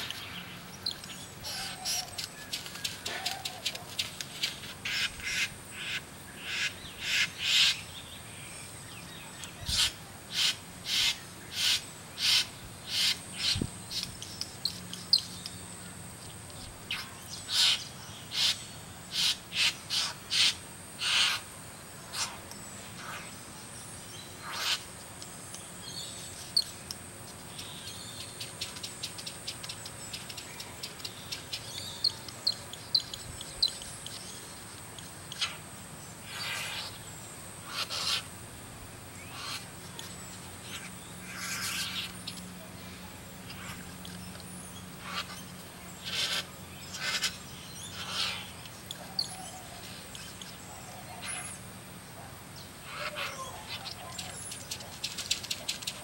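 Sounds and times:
faint high insect hum: 0.0s - 56.0s
bird harsh rasping calls: 1.4s - 7.9s, 9.6s - 14.0s, 16.9s - 22.4s, 24.4s - 24.9s, 36.2s - 37.0s, 37.6s - 38.3s, 39.2s - 39.8s, 40.6s - 42.4s, 44.9s - 49.8s, 52.8s - 54.4s.

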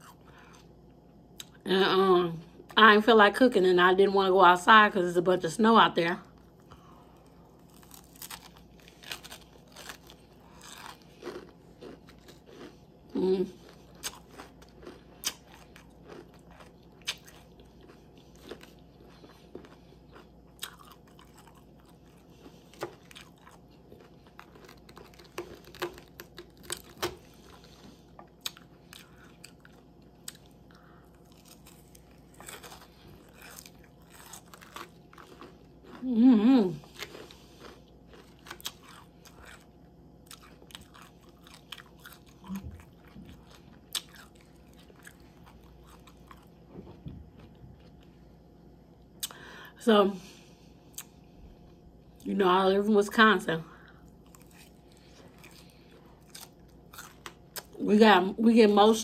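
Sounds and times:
crunchy chewing: 6.3s - 48.4s, 53.8s - 57.8s.

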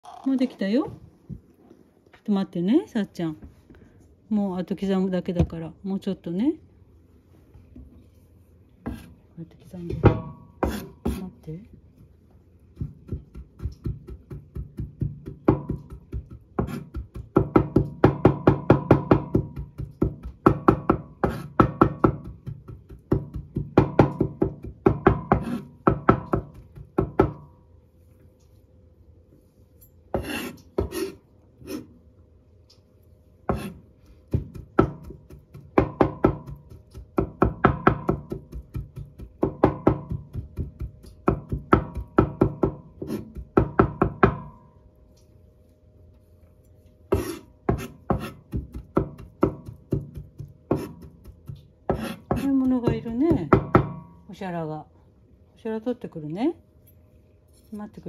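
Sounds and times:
knife chopping on cutting board: 12.8s - 27.4s, 33.5s - 44.5s, 47.1s - 54.0s.

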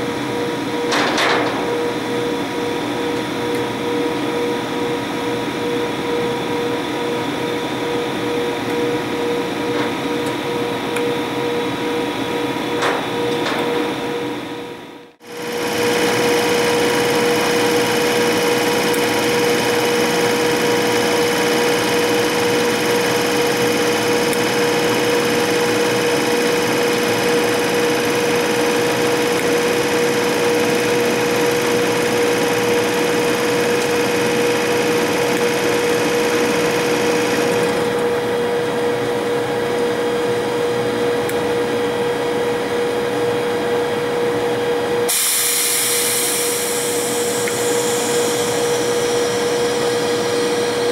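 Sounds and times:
electric locomotive equipment whirring: 0.0s - 50.9s.

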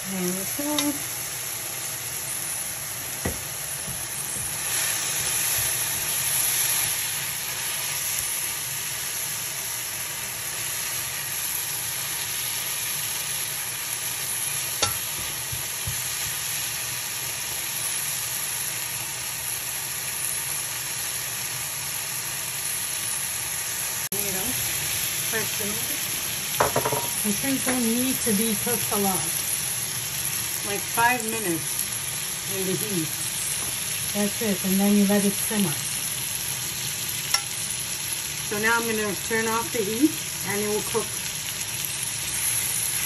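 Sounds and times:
food sizzling in frying pan: 0.0s - 43.0s
spatula tapping pan: 14.8s - 16.4s, 26.6s - 27.9s.

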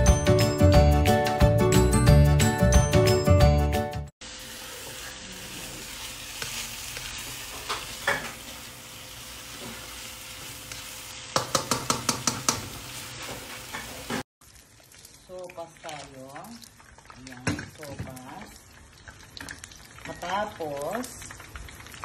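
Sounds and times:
food sizzling in a wok: 4.2s - 15.5s
spatula scraping a pan: 4.8s - 8.6s.

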